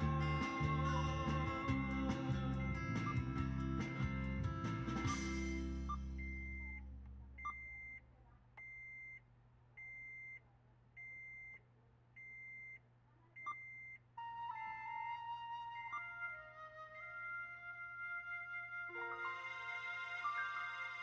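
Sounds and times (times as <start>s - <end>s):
music: 0.0s - 6.7s, 14.2s - 21.0s
electronic beeper beeping: 5.3s - 6.8s.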